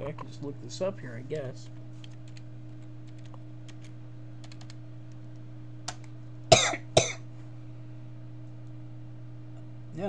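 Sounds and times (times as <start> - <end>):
person coughing: 6.5 - 7.3.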